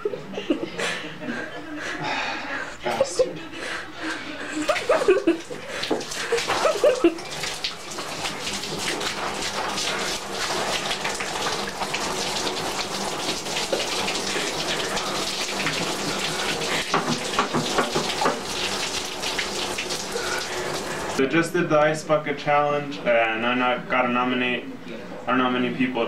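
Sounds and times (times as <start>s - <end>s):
water splashing on shower floor: 4.5s - 21.2s
water pouring and splashing: 4.6s - 21.2s.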